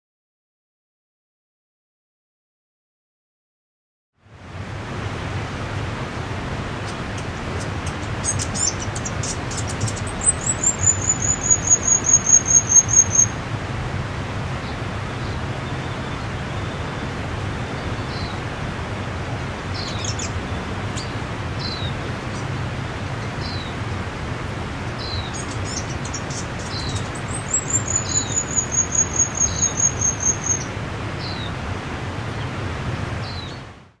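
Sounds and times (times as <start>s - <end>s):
river water rushing: 4.2s - 34.0s
songbird trilling and chirping: 6.8s - 13.4s, 19.8s - 20.4s, 23.4s - 23.7s, 25.0s - 31.5s.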